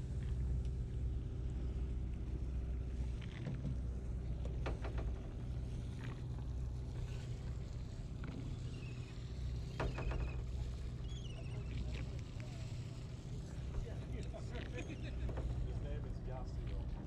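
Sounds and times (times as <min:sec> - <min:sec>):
boat engine humming: 0:00.0 - 0:17.0
faint clicks and knocks: 0:03.0 - 0:06.5.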